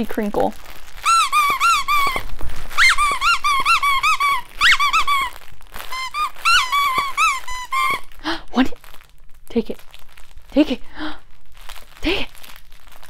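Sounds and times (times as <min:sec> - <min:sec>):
dog toy squeaking: 0:01.0 - 0:08.2.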